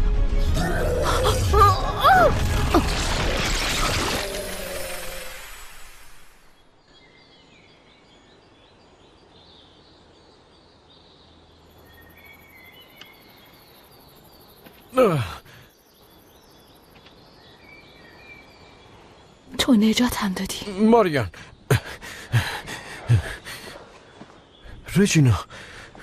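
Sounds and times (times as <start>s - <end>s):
birds chirping: 6.4s - 26.0s
person sighing: 15.0s - 15.6s.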